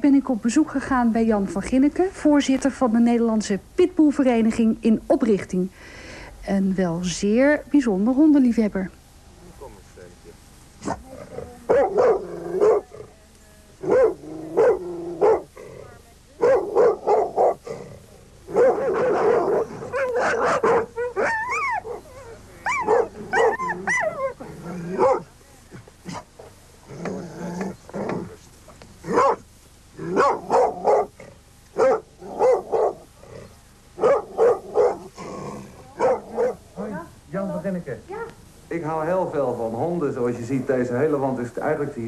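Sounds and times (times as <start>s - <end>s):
dogs barking: 11.6s - 13.0s, 13.8s - 15.6s, 16.4s - 17.8s, 18.5s - 25.3s, 29.0s - 33.1s, 34.0s - 35.2s, 35.9s - 36.8s
dogs whining: 18.6s - 25.3s, 31.8s - 35.2s.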